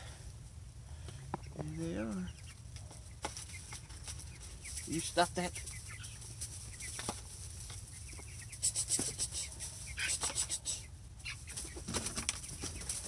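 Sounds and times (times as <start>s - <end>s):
chickens clucking softly: 1.1s - 13.0s
scratchy rustles in straw: 2.8s - 13.0s.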